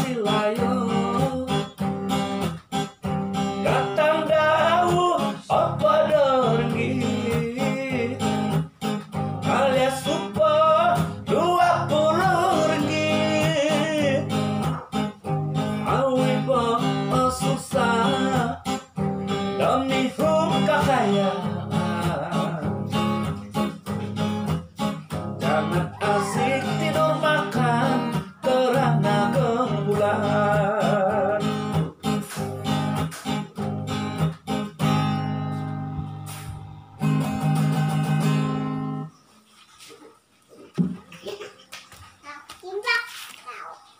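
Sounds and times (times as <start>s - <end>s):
man singing: 0.0s - 2.6s, 3.4s - 32.8s
strummed acoustic guitar: 0.0s - 39.8s.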